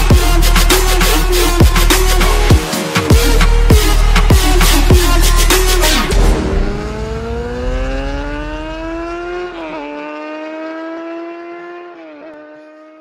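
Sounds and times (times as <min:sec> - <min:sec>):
electronic music: 0:00.0 - 0:09.7
motorcycle engine accelerating: 0:02.4 - 0:13.0.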